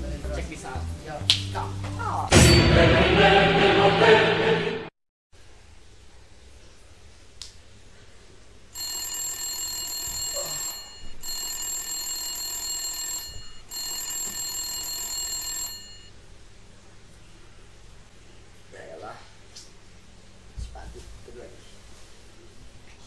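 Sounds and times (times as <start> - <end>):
mobile phone ringing: 8.8 - 16.1.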